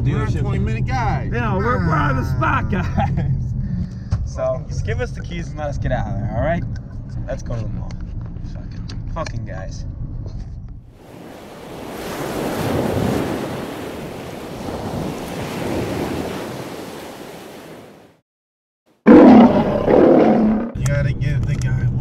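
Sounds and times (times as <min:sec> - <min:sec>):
man yelling loudly: 0:01.4 - 0:03.0
ocean surf washing in: 0:11.0 - 0:18.2.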